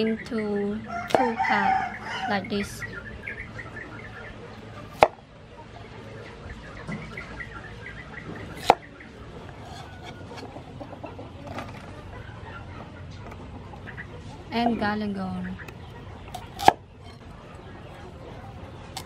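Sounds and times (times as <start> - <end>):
chickens clucking: 0.0 - 19.0
cleaver chopping on wooden block: 8.6 - 8.8, 16.6 - 16.8.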